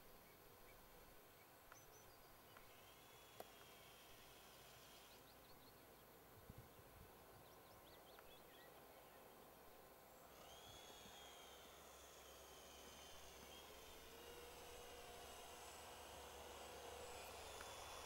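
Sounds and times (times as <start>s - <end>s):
faint high whine: 0.0s - 18.0s
faint bird chirps: 0.2s - 3.2s.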